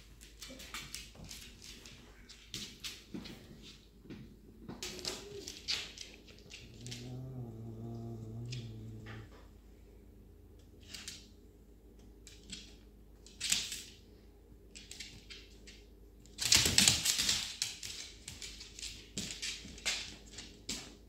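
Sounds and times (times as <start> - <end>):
claws scrabbling on hard floor: 0.2 - 9.4.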